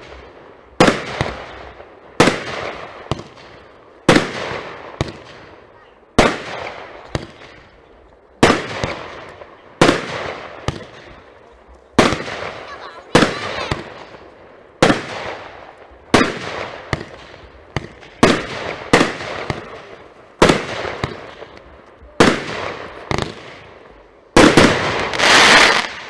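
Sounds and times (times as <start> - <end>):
firework finale burst: 0.0 - 7.8, 8.4 - 26.0
firework cake bangs: 8.4 - 11.3, 12.0 - 14.2, 14.8 - 15.5, 16.1 - 21.6, 24.4 - 26.0.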